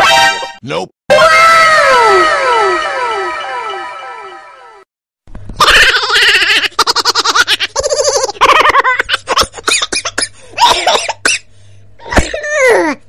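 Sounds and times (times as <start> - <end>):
high-pitched giggling laughter: 5.6 - 10.2.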